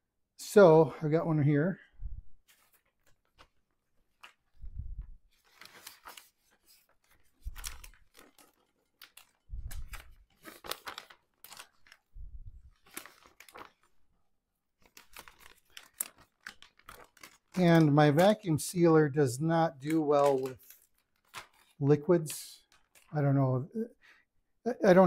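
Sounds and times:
plastic bag crinkling: 0:05.3 - 0:14.0, 0:14.8 - 0:23.2.

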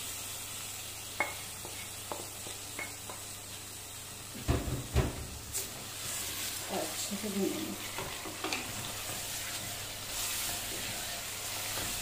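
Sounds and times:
meat sizzling in hot oil: 0:00.0 - 0:12.0
stirring and scraping meat: 0:05.5 - 0:12.0.

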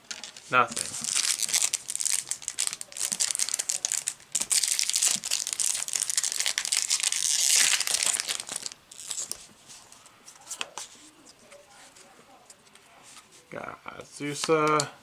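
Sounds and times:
foil wrapper crinkling and tearing: 0:00.2 - 0:09.4.

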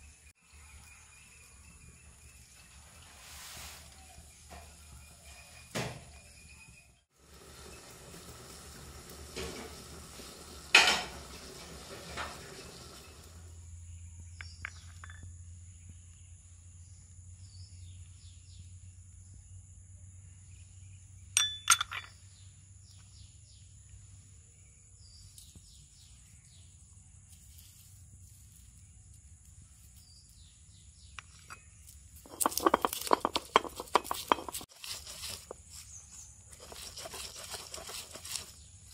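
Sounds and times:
insect chirps: 0:12.5 - 0:38.9
china plates clinking: 0:21.4 - 0:22.2.

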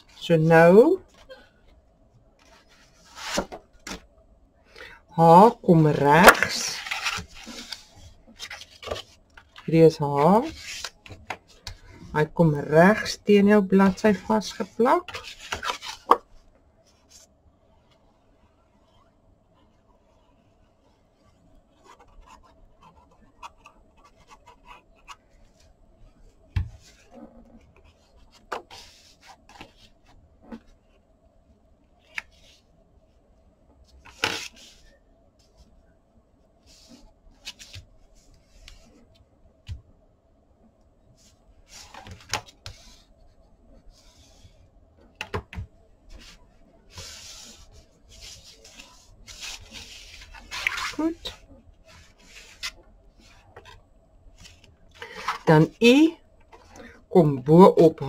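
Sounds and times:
paper rustling: 0:06.3 - 0:09.7, 0:46.1 - 0:53.8
cloth rubbing over paper: 0:46.1 - 0:53.5.

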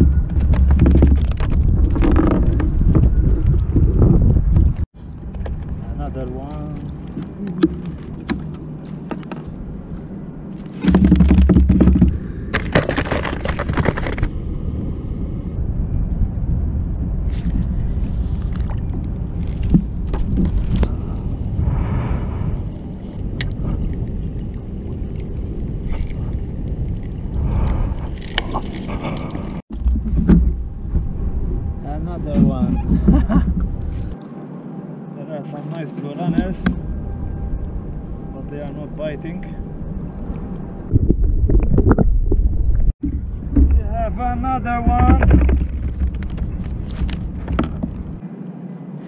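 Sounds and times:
wind rumbling on microphone: 0:00.0 - 0:34.2, 0:36.1 - 0:49.0
fishing tackle knocks and scrapes: 0:00.3 - 0:04.7, 0:10.6 - 0:14.3, 0:17.3 - 0:20.9, 0:28.0 - 0:30.6, 0:45.0 - 0:48.2.

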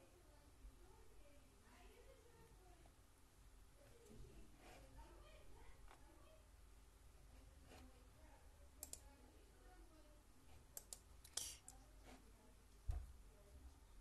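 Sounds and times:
sharp small clicks: 0:10.7 - 0:11.7.

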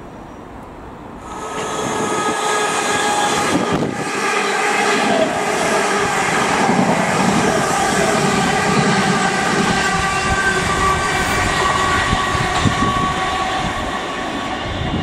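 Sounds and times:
train whine: 0:00.0 - 0:15.0
train wheels rushing on rail: 0:01.0 - 0:15.0.

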